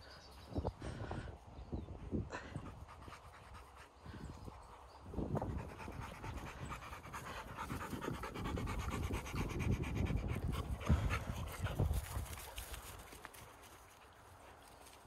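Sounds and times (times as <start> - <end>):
wind rumbling on microphone: 0.0 - 13.4
dog panting: 2.4 - 12.5.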